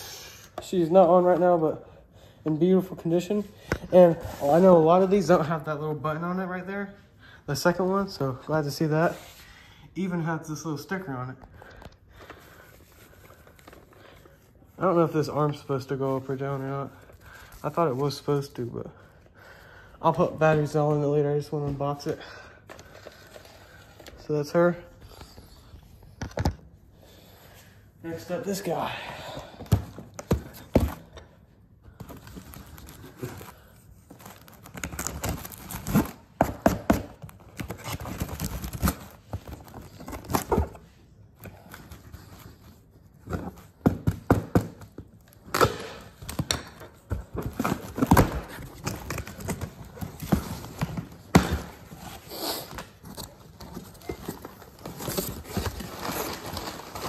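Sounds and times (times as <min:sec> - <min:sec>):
cardboard rustling: 0:31.9 - 0:57.0.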